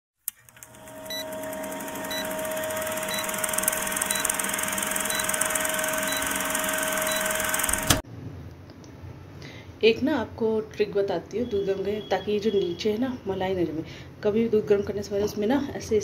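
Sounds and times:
film projector whirring: 0:00.3 - 0:08.0.

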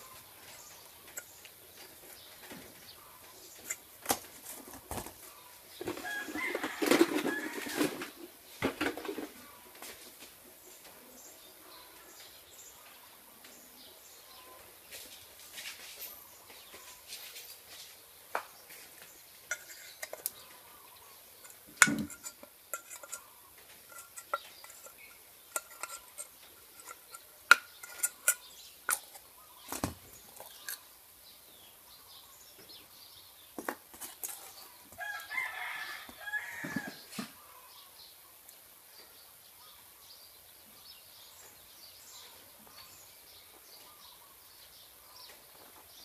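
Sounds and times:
rooster crowing: 0:05.9 - 0:08.0, 0:35.0 - 0:37.0.

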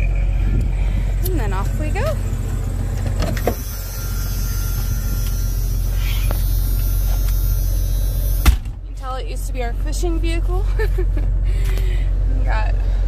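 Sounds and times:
engine running: 0:00.0 - 0:13.0.

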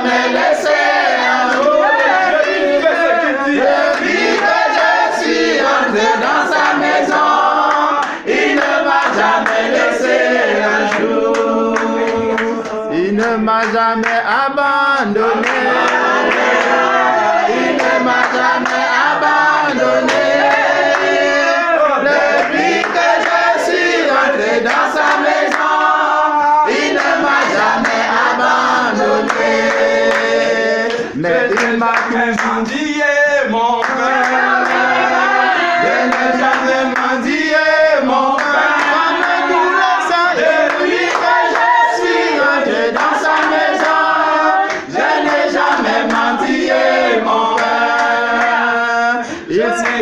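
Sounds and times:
group singing praise song: 0:00.0 - 0:50.0
hand clapping: 0:01.4 - 0:02.6, 0:03.9 - 0:05.4, 0:06.5 - 0:10.2, 0:10.9 - 0:14.3, 0:15.4 - 0:16.8, 0:17.7 - 0:21.2, 0:22.2 - 0:24.0, 0:24.6 - 0:25.9, 0:26.7 - 0:32.9, 0:33.8 - 0:35.0, 0:36.0 - 0:46.8, 0:47.5 - 0:48.6, 0:49.8 - 0:50.0.

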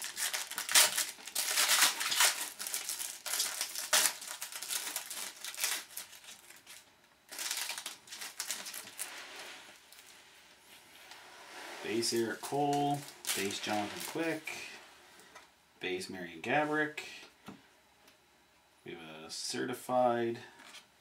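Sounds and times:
foil wrappers crinkling and tearing: 0:00.0 - 0:10.2, 0:11.9 - 0:14.8.

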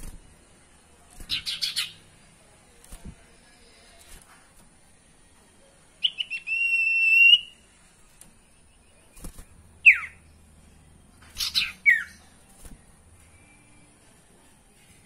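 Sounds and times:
bird whistling calls: 0:09.8 - 0:10.2.

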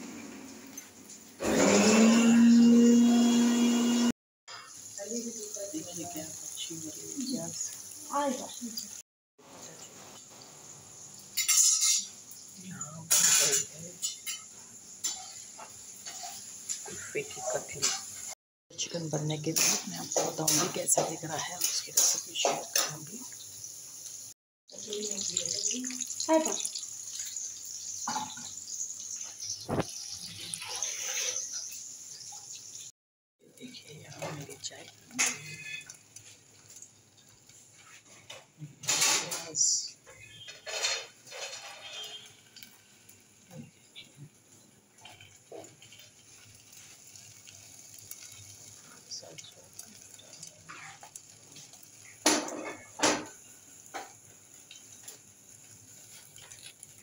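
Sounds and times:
onions sizzling in hot oil: 0:00.0 - 0:57.0
steel cookware clanking: 0:11.3 - 0:12.4, 0:13.1 - 0:18.4, 0:19.2 - 0:23.2, 0:34.2 - 0:42.8, 0:49.3 - 0:55.2.

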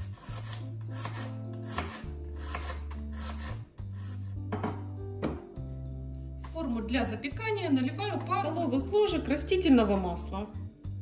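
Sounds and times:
knife slicing onion on wooden board: 0:00.0 - 0:04.8
background music with bass line: 0:00.1 - 0:11.0.

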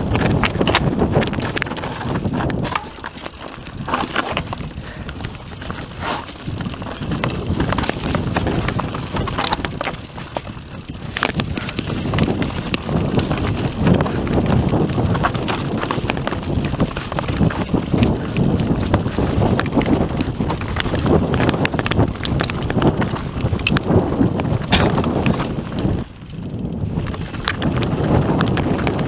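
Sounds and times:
bike rattling over stones: 0:00.0 - 0:29.0
bike tyres rumbling on dirt trail: 0:00.0 - 0:29.0
wind buffeting microphone: 0:00.0 - 0:29.0.

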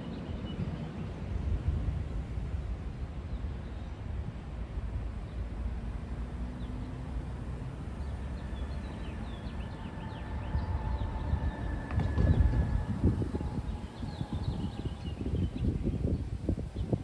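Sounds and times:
passing car traffic: 0:00.0 - 0:17.0
wind rumble: 0:00.0 - 0:17.0
small birds chirping: 0:07.8 - 0:17.0.

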